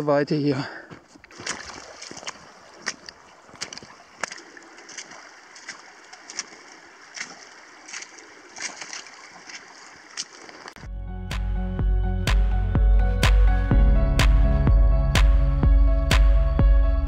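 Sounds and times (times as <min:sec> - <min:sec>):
boots splashing through shallow water: 0:00.8 - 0:10.9
running water hiss: 0:01.3 - 0:10.8.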